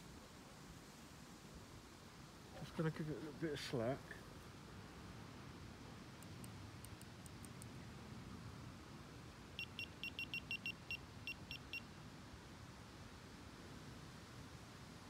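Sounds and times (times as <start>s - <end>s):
faint high ticks: 6.2s - 7.8s
bite alarm beeping: 9.6s - 11.8s.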